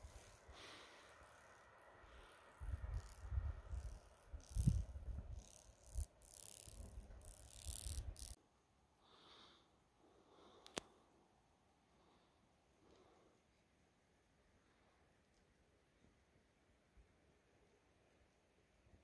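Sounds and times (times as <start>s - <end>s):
faint click: 10.6s - 11.0s.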